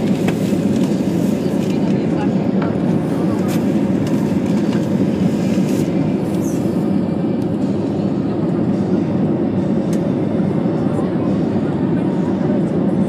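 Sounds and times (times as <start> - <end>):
airliner cabin rumble: 0.0 - 13.0.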